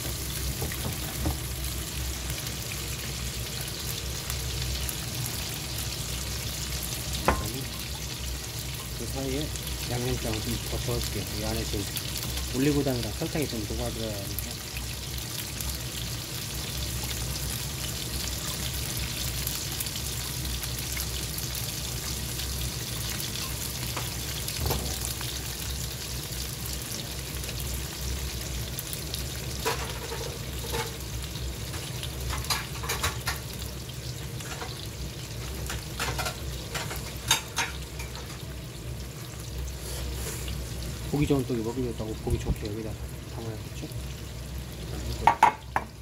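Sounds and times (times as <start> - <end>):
meat sizzling in oil: 0.0 - 46.0.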